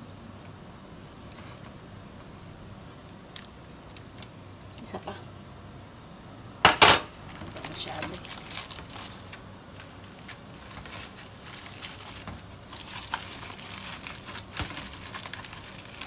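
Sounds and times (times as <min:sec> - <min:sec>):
aluminium foil crinkling: 0:07.1 - 0:16.0.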